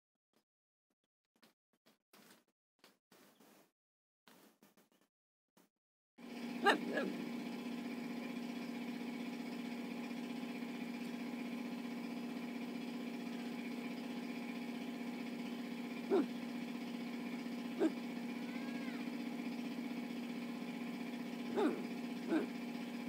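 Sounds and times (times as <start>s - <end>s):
motor humming: 6.2s - 23.0s.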